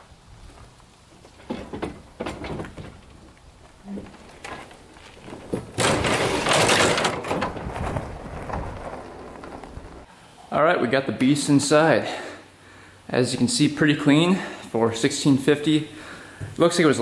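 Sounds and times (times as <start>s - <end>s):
atv clattering down wooden ramps: 1.1s - 10.1s
scraping: 1.2s - 10.1s.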